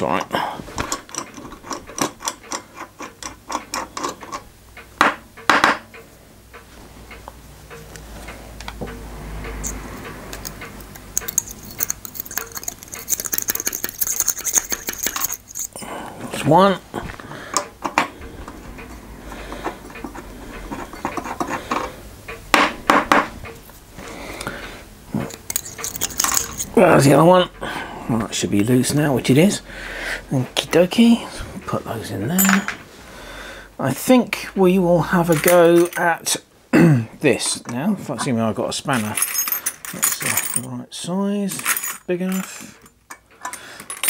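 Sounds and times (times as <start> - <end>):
spanner clicking and scraping on nut: 0.0 - 5.9, 8.6 - 15.8, 18.8 - 23.2, 25.3 - 26.8.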